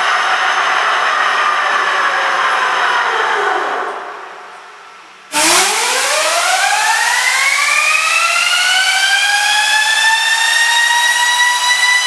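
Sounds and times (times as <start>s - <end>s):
turbojet engine whine: 5.3s - 12.0s.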